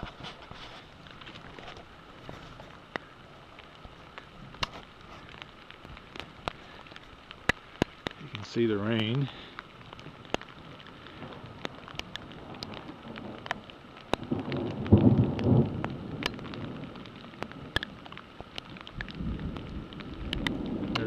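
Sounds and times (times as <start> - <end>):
rain and sleet falling: 0.0 - 21.0
thunder rumble: 10.0 - 21.0.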